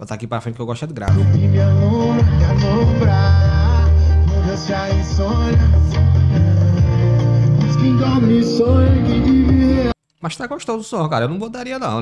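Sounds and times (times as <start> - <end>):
music with pulsing bass and guitar: 1.1 - 10.0.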